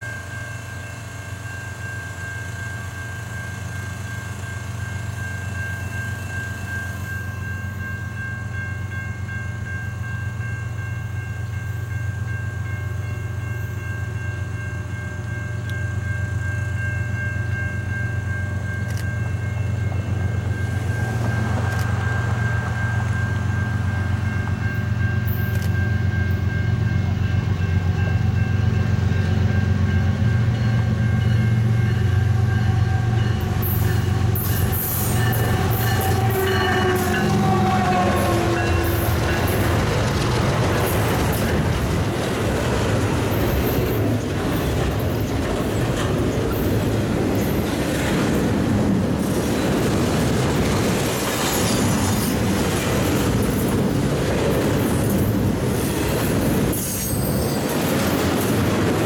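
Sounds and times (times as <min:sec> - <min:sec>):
steady high ringing tone: 0:00.0 - 0:41.7, 0:56.5 - 0:58.6
locomotive engine rumble: 0:16.8 - 0:51.4.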